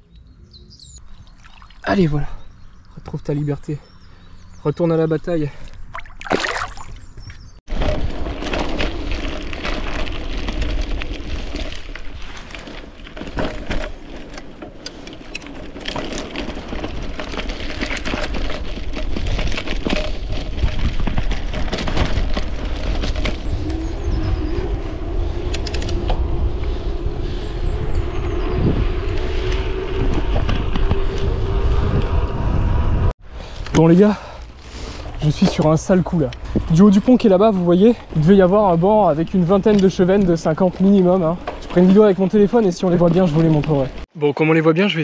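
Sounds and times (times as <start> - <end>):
bike tyre and drivetrain noise: 7.0 - 44.1
wind buffeting microphone: 15.2 - 33.2, 34.9 - 44.0.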